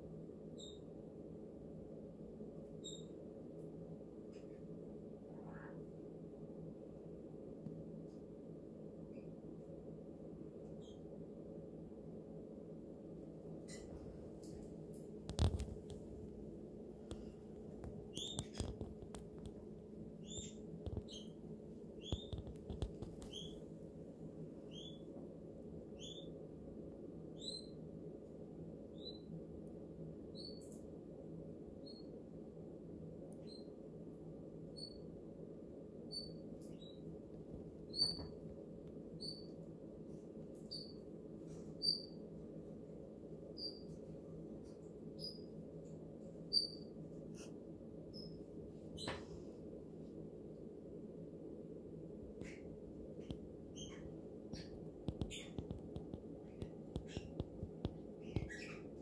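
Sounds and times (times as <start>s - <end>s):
steady low hum: 0.0s - 59.0s
small animal chirping: 0.6s - 0.8s, 2.8s - 3.1s, 18.1s - 19.2s, 20.2s - 21.4s, 22.0s - 23.6s, 24.7s - 25.1s, 34.8s - 35.0s, 36.1s - 37.0s, 39.2s - 39.6s, 40.6s - 41.0s, 41.8s - 42.2s, 43.6s - 43.9s, 45.2s - 45.5s, 46.5s - 47.5s, 52.4s - 57.5s, 58.2s - 59.0s.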